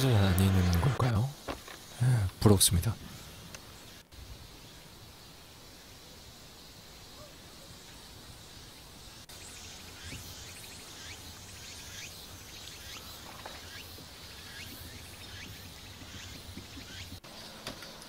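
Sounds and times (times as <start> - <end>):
high insect drone: 0.0 - 18.0
soft steady hiss: 0.0 - 18.0
bird chirps: 9.3 - 17.6.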